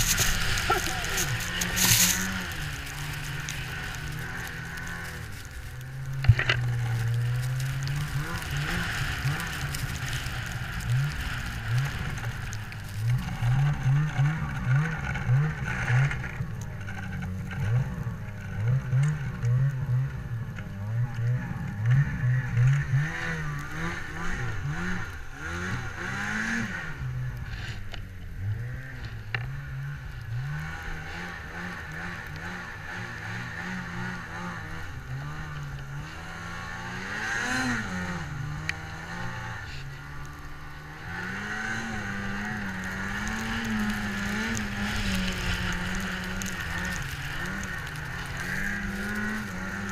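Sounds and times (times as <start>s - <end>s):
snowmobile engine revving: 0.0s - 49.9s.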